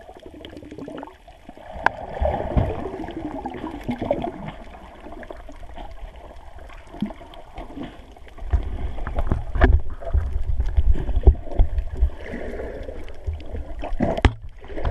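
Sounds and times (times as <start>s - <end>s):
low underwater rumble: 0.0s - 14.9s
water moving against camera case: 7.6s - 12.2s.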